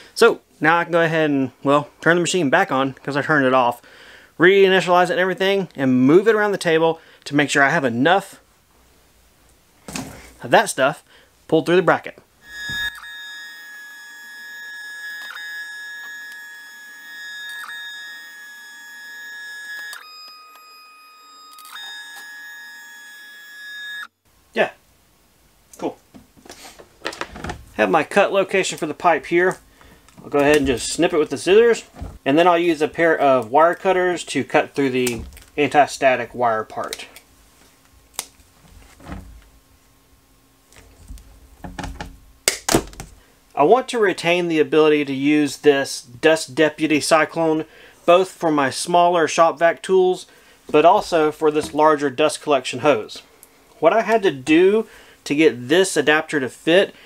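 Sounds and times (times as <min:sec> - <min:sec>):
stepper motors whining: 0:12.4 - 0:24.2
hose rustling and creaking: 0:26.4 - 0:32.3, 0:38.4 - 0:39.5.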